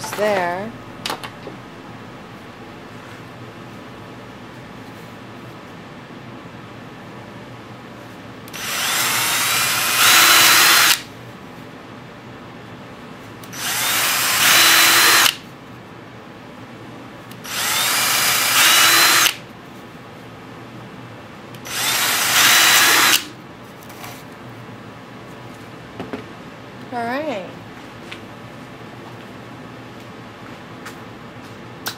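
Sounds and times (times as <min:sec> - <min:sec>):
cordless drill boring through wood: 0:08.6 - 0:11.0, 0:13.6 - 0:15.4, 0:17.4 - 0:19.4, 0:21.7 - 0:23.3.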